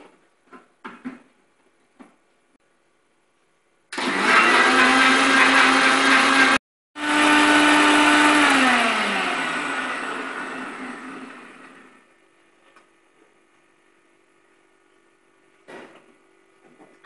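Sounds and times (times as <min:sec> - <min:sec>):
mixer grinder motor: 0:03.9 - 0:12.2.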